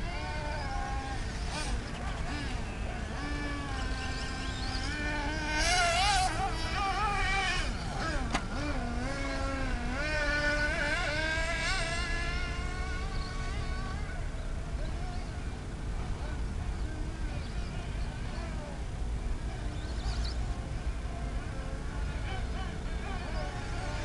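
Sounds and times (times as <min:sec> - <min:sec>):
toy car motor buzzing: 0:00.0 - 0:14.4, 0:21.2 - 0:24.0.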